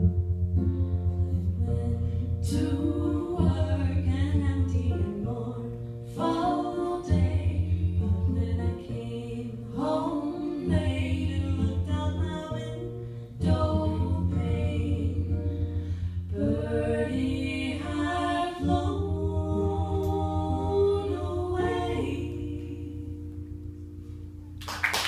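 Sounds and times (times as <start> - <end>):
two voices singing in harmony: 1.2 - 23.5
audience applause: 24.6 - 25.0.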